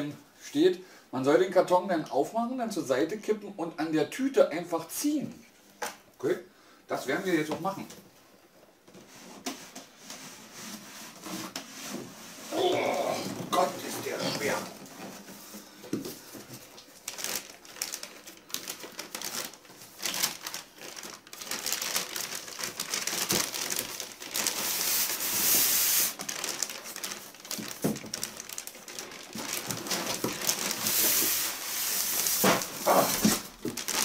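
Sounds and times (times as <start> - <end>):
plastic bag rustling and crinkling: 8.9 - 34.0
packaging scraping: 12.5 - 15.3, 16.5 - 34.0.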